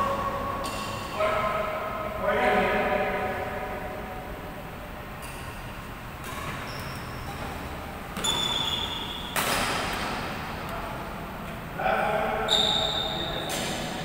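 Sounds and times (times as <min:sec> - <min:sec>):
rackets hitting shuttlecock: 0:00.0 - 0:01.1, 0:05.1 - 0:10.8, 0:13.4 - 0:14.0.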